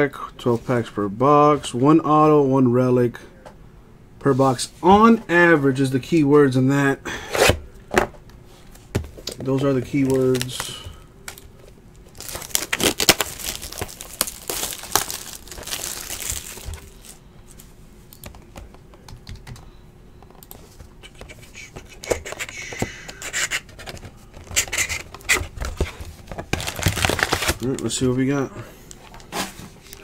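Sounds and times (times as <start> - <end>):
wrapping and cardboard tearing: 12.2 - 17.2, 26.5 - 27.7.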